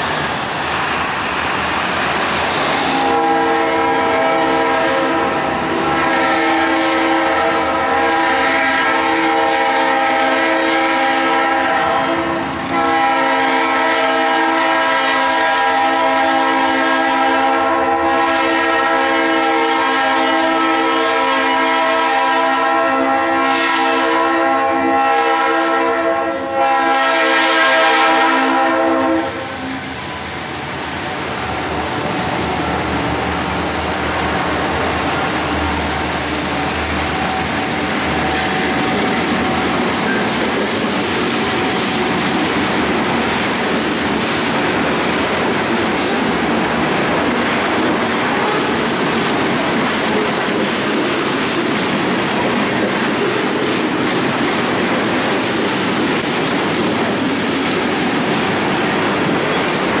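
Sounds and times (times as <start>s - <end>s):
diesel locomotive engines rumbling: 0.0s - 60.0s
train wheels clattering over rail joints: 11.9s - 13.0s, 36.2s - 60.0s
high-pitched wheel squeal: 30.2s - 40.8s.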